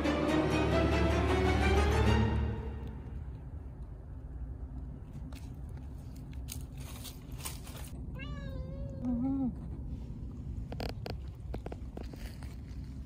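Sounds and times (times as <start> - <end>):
cat meowing: 8.1 - 9.3
soft rustles and clicks: 9.5 - 13.0.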